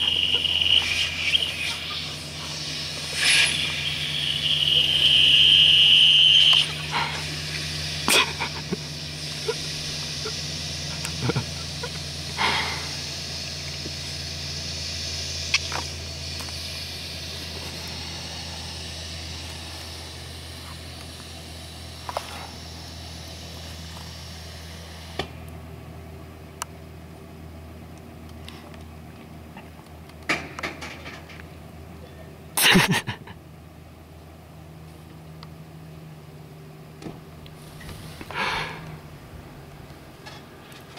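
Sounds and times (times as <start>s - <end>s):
high steady whistle: 0.0s - 25.2s
truck engine humming: 0.0s - 32.5s, 33.2s - 40.9s.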